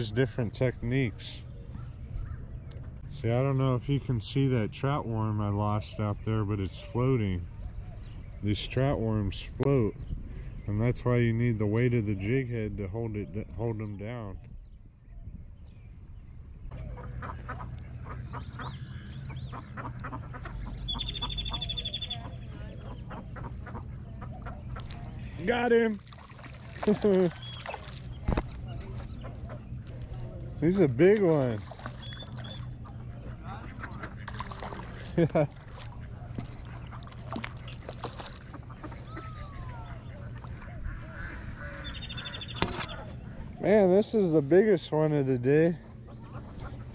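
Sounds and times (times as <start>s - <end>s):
ducks quacking: 16.7s - 46.9s
fish splashing at surface: 26.0s - 28.4s, 31.2s - 32.6s, 34.1s - 39.1s.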